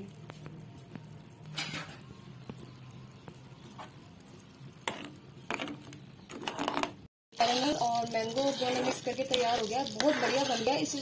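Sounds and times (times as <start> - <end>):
syrup boiling sizzle: 0.0 - 11.0
spoon scraping steel pan: 4.9 - 11.0.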